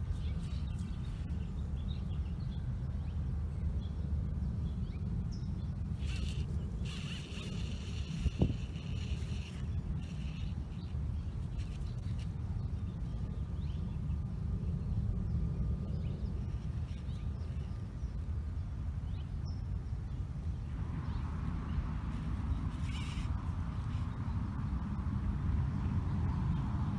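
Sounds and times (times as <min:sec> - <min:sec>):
faint bird chirps: 0:04.9 - 0:14.0, 0:22.1 - 0:24.4.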